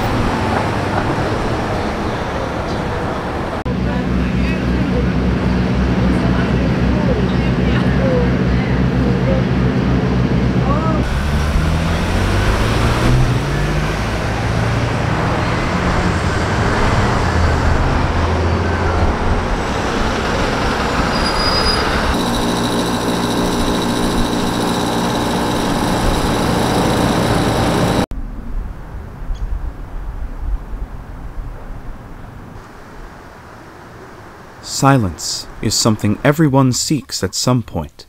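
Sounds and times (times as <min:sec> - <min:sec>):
bus engine hum passing: 0:00.0 - 0:28.1
cars pulling away: 0:00.0 - 0:28.1.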